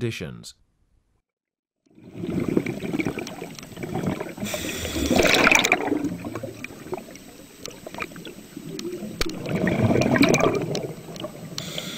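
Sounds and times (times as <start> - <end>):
water sloshing and splashing: 1.9 - 11.7.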